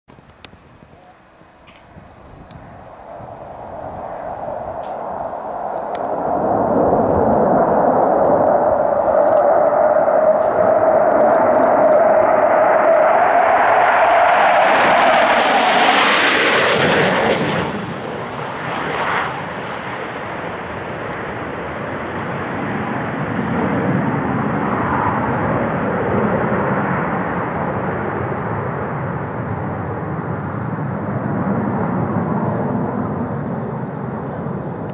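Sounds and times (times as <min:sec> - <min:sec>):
distant jet rumble: 0:00.1 - 0:34.9
jet roar passing low: 0:00.2 - 0:34.9.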